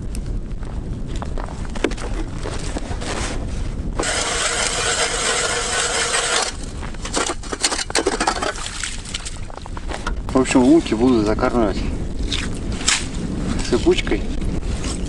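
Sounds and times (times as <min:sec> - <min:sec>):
ice auger grinding: 0:04.0 - 0:08.6.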